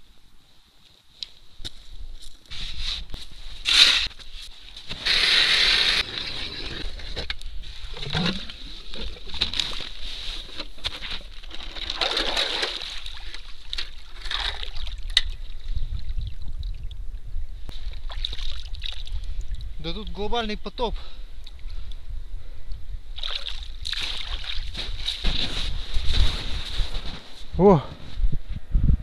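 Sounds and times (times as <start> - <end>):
snow shovel scraping snow: 2.5 - 4.1, 4.9 - 7.2
ice auger: 4.9 - 7.2
slush and water sloshing: 7.9 - 15.3, 23.2 - 25.8.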